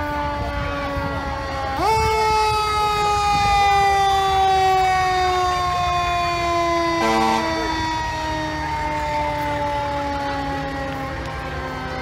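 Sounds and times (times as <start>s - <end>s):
fire engine siren wailing: 0.0s - 12.0s.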